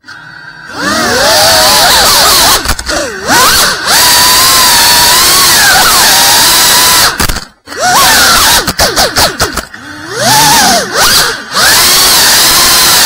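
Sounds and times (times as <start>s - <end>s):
drone motors whining: 0.0s - 13.0s.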